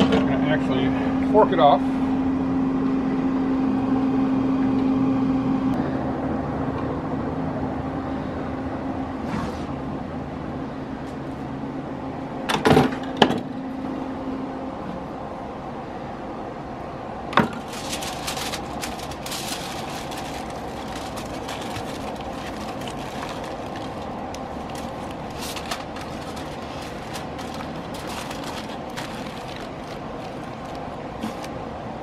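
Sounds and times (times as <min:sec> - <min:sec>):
steady mechanical hum: 0:00.0 - 0:32.0
aluminum foil crinkling: 0:17.4 - 0:31.5.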